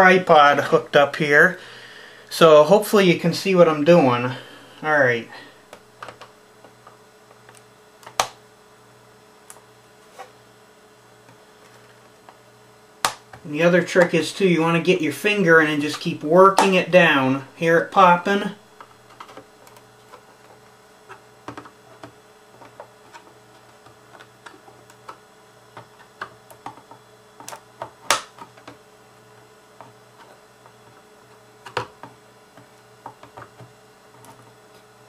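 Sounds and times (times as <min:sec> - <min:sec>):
plastic clips popping loose: 0:25.8 - 0:28.8.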